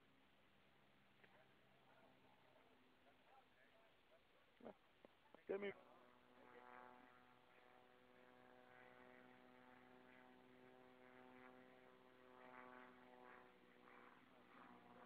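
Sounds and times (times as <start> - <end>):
distant propeller plane drone: 0.0 - 15.0.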